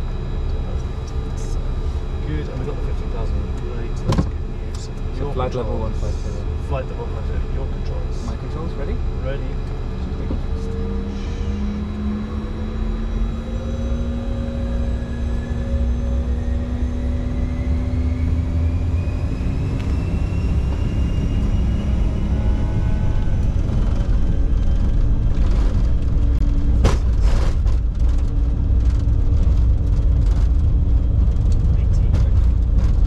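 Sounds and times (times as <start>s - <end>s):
jet engines spooling up: 4.7s - 27.4s.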